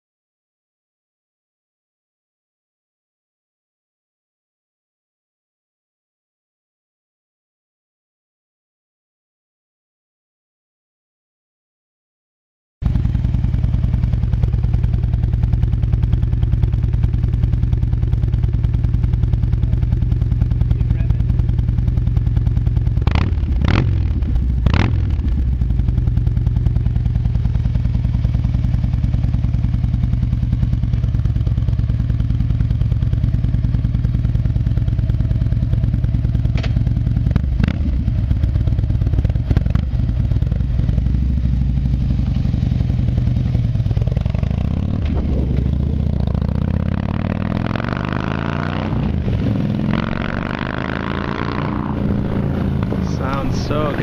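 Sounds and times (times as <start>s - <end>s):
motorcycle engine idling: 12.8s - 48.3s, 49.1s - 54.0s
motorcycle pulling away shifting: 12.9s - 54.0s.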